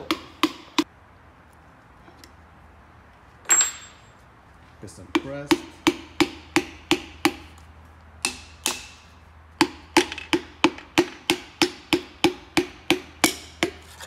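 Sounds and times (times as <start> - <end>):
sharp metal knocks ringing: 0.0 - 0.9, 3.4 - 4.1, 8.2 - 13.8.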